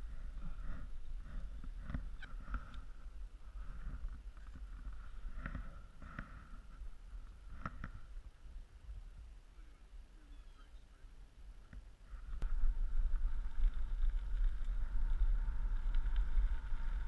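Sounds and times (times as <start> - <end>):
bike rolling on wet pavement: 12.4 - 17.0.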